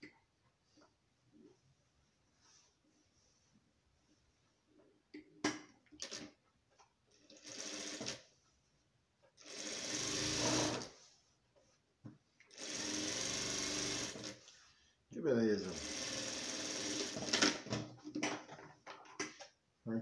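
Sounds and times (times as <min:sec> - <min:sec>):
sewing machine stitching: 0:07.2 - 0:08.2, 0:09.4 - 0:10.9, 0:12.5 - 0:14.4, 0:15.7 - 0:17.7.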